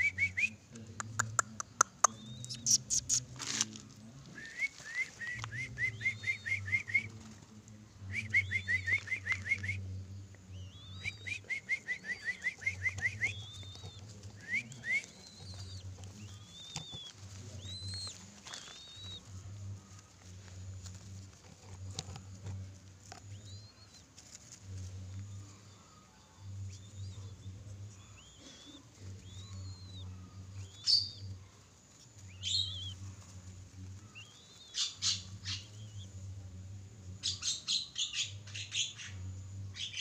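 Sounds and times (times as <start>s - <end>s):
young doves whistled chirps: 0.0s - 0.6s, 2.0s - 3.3s, 4.4s - 7.2s, 8.0s - 9.8s, 10.5s - 19.3s, 23.2s - 24.0s, 26.6s - 31.3s, 32.2s - 33.0s, 34.1s - 36.1s
arched whistles: 4.4s - 7.1s, 8.1s - 9.8s, 10.6s - 19.2s
wing flaps and scuffling: 12.2s - 25.4s.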